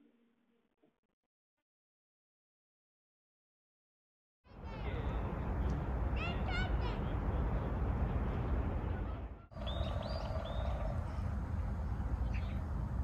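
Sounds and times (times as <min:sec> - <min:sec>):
bird chirps: 0:09.5 - 0:11.3.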